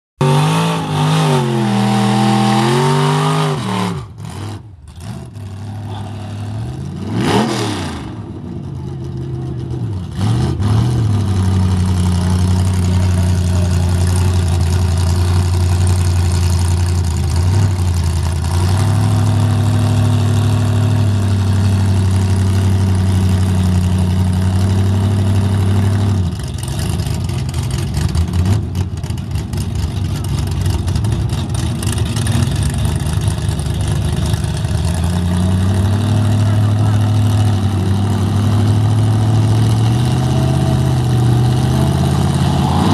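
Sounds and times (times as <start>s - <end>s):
truck engines idling loudly: 8.1s - 42.5s.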